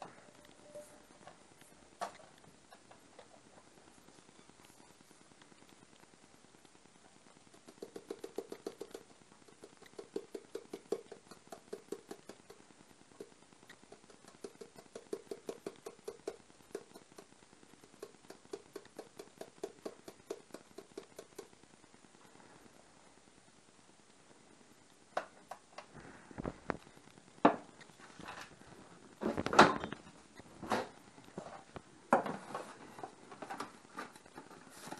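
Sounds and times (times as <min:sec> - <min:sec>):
rapid light tapping on bowl: 0:07.4 - 0:21.6.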